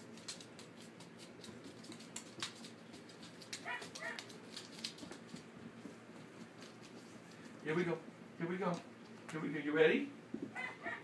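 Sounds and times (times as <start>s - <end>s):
puppies clicking and scuffling: 0.0s - 7.8s
faint puppy cries: 3.6s - 4.2s, 10.5s - 11.0s.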